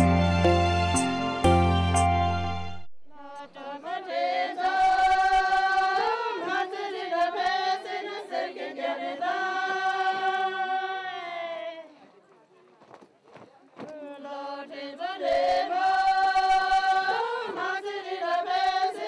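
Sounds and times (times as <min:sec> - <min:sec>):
instrumental music with bass line: 0:00.0 - 0:02.9
women singing in unison: 0:03.2 - 0:11.9, 0:14.2 - 0:19.0.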